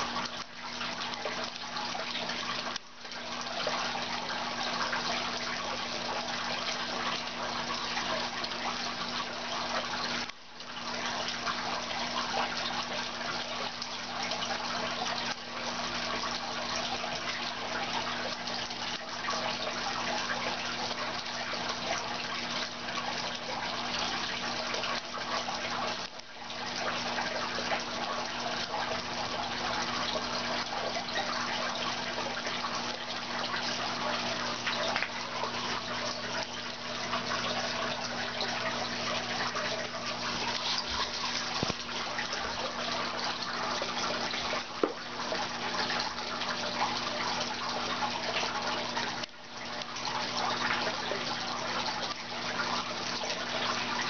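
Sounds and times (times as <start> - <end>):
low electrical hum: 0.0 - 54.0
water running and splashing: 0.0 - 54.0.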